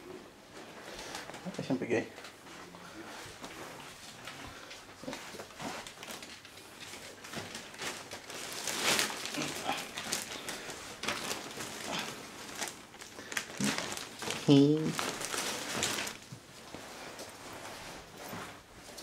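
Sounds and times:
puppies scuffling on a rug: 0.1s - 12.8s, 13.4s - 19.0s.

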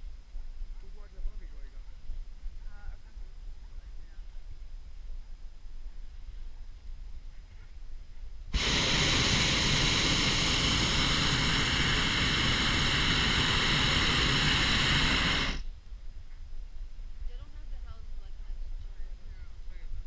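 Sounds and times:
propane burner blast: 8.5s - 15.7s.

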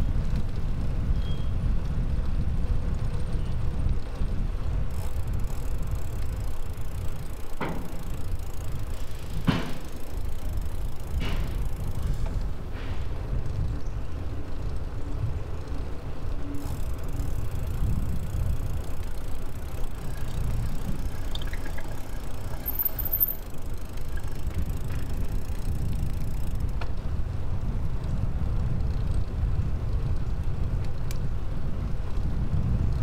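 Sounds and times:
bicycle tyres rolling on pavement: 0.0s - 33.0s
wind buffeting microphone: 0.0s - 33.0s.

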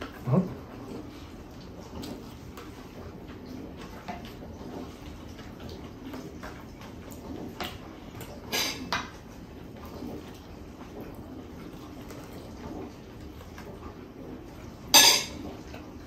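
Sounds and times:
soft eating noises: 0.0s - 16.0s
spoon clinking against dishware: 15.0s - 15.4s.

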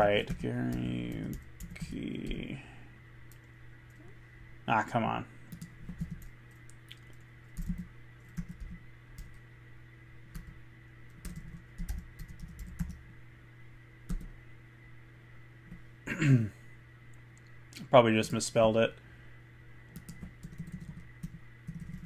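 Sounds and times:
computer keyboard typing: 0.0s - 1.9s, 5.5s - 9.4s, 10.3s - 10.5s, 11.1s - 13.0s, 14.1s - 14.3s, 19.9s - 22.0s.

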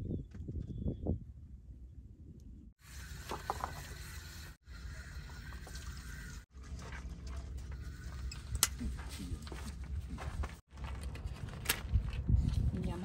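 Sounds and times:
wind rumbling on microphone: 0.0s - 2.7s, 8.0s - 13.0s.

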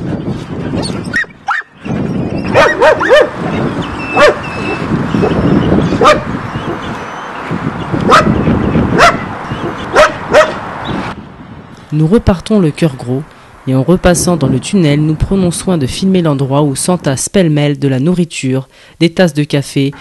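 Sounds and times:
dogs barking: 1.0s - 7.2s, 8.0s - 10.7s.

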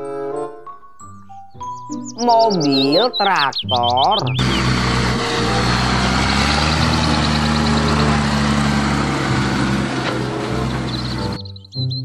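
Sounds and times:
tractor diesel engine under load: 4.3s - 11.5s.

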